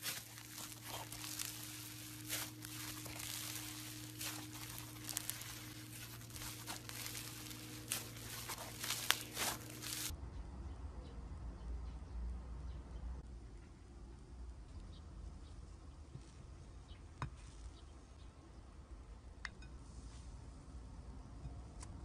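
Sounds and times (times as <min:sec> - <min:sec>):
slime crackling and popping: 0:00.0 - 0:10.1.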